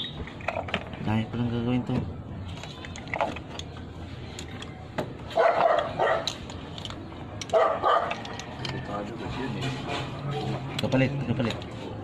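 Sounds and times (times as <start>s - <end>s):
dog barking: 5.4s - 6.3s, 7.5s - 8.1s.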